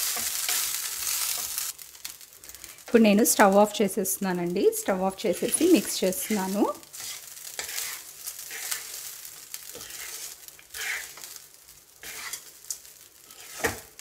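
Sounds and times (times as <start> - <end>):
spatula scraping a pan: 0.0 - 1.8, 5.4 - 14.0
light sizzle: 0.0 - 14.0.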